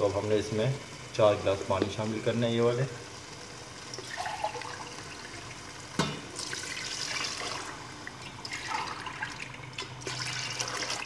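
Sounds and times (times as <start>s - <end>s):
water pouring into a metal pot: 3.4s - 11.0s.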